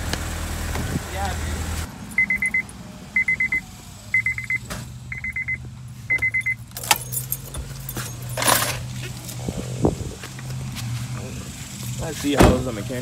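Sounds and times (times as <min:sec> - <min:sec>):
car engine running: 0:00.0 - 0:13.0
car warning chime beeping: 0:02.1 - 0:07.5.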